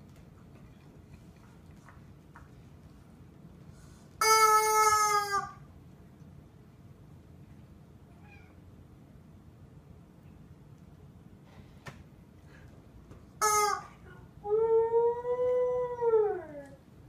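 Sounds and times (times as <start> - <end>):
rubber chicken squawk: 4.2 - 5.6, 13.4 - 13.9.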